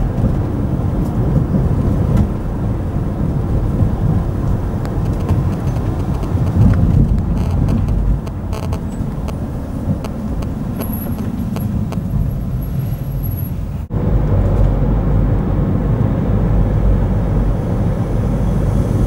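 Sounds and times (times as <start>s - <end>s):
car engine and tyre noise: 0.0s - 19.0s
road rumble: 0.0s - 19.0s.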